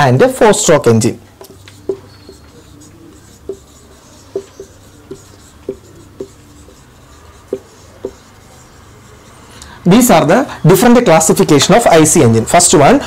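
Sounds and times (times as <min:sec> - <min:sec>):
marker squeaking on whiteboard: 0:01.3 - 0:09.8.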